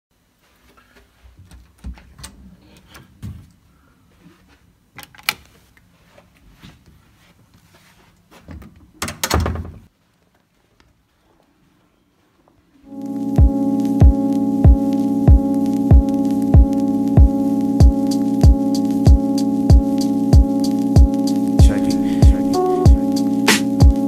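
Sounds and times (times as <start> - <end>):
latch and door clatter: 9.0 - 9.8.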